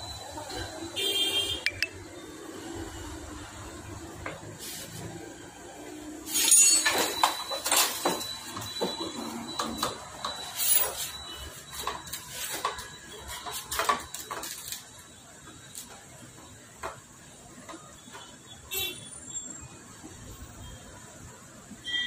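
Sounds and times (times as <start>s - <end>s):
metal scraping and clinking: 6.3s - 9.6s.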